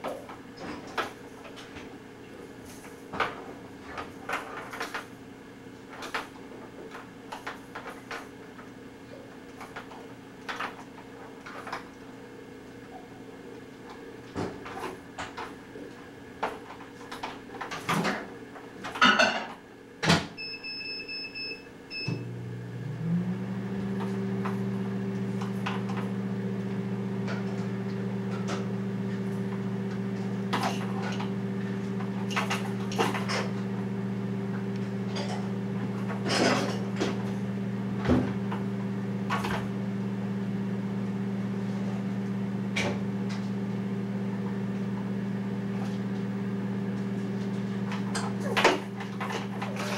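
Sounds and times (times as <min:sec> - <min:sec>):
microwave oven humming: 0:00.0 - 0:49.9.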